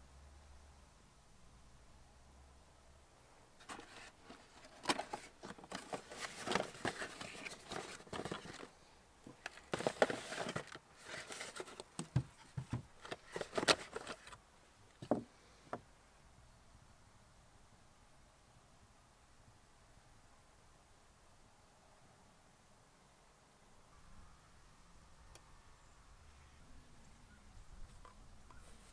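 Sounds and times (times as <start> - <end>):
cardboard box rustling and scraping: 3.6 - 8.7, 9.3 - 14.4.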